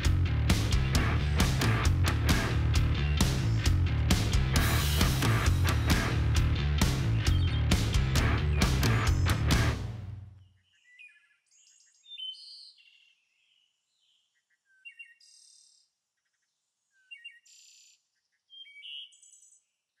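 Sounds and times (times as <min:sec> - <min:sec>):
music: 0:00.0 - 0:10.4
bird chirps and calls: 0:07.0 - 0:07.8, 0:10.4 - 0:20.0.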